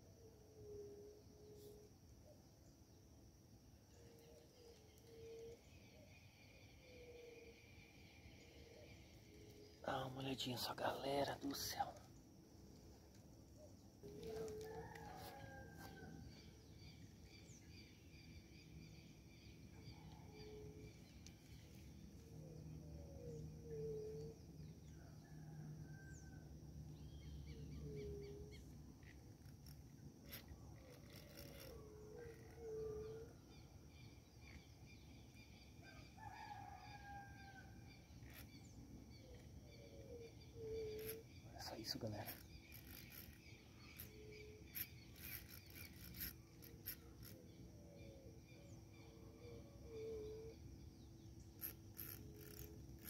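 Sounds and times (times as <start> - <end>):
bird calling: 13.6 - 16.1.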